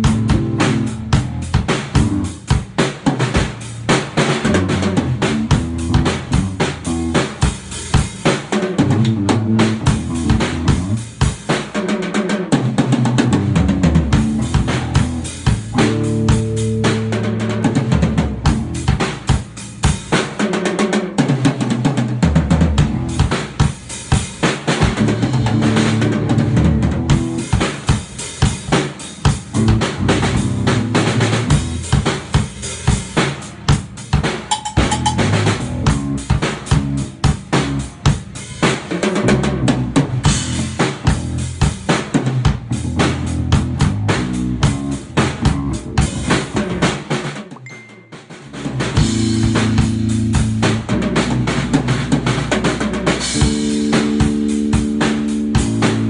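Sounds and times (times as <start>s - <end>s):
bass guitar riff: 0.0s - 2.6s, 4.4s - 7.6s, 8.8s - 11.2s, 13.0s - 19.0s, 22.3s - 23.4s, 25.0s - 27.6s, 29.4s - 32.1s, 34.6s - 38.2s, 39.2s - 41.7s, 42.5s - 46.9s, 48.5s - 56.0s
drum kit groove: 0.0s - 56.0s.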